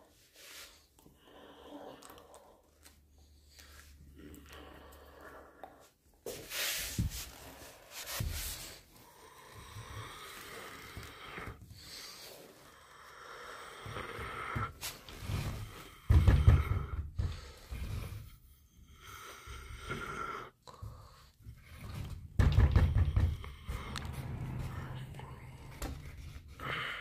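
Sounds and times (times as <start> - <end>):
low thumping: 22.0 - 26.6.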